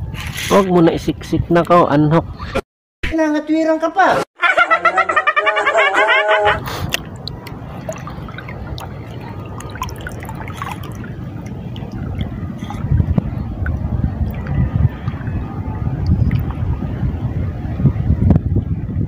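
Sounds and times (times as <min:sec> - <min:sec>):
wind rumbling on microphone: 0:00.0 - 0:02.6, 0:06.5 - 0:19.0
small waves lapping: 0:06.6 - 0:17.0.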